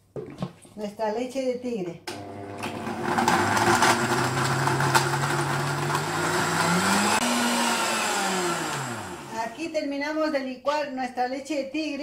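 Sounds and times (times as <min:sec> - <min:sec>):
electric blender running: 0:02.1 - 0:09.5.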